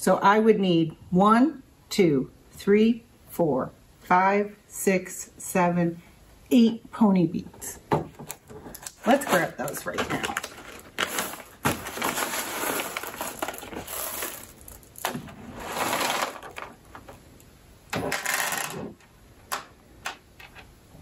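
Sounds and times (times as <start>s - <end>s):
plastic bag crinkling: 8.8s - 17.2s
beads rattling in bag: 9.1s - 17.0s.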